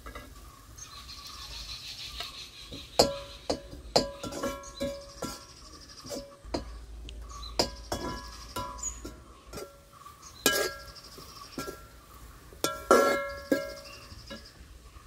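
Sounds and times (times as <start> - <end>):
metal spatula scraping wok: 3.0 - 14.6.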